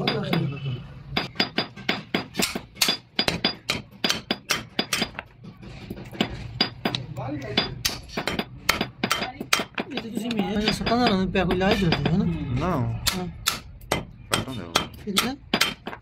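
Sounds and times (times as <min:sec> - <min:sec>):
hammer striking metal rivets: 0:01.2 - 0:05.3, 0:13.1 - 0:16.0.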